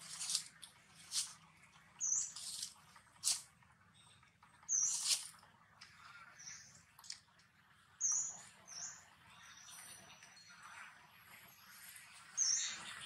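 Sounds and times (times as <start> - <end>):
bird chirping: 2.0 - 3.4, 4.0 - 5.3.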